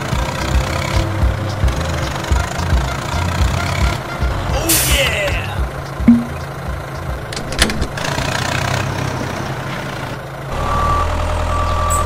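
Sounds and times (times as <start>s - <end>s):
tractor engine running: 0.0s - 12.0s
short high beeps: 6.1s - 6.4s.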